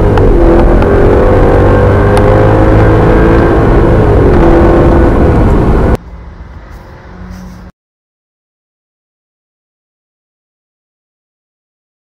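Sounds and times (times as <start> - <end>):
car engine accelerating: 0.0 - 7.7.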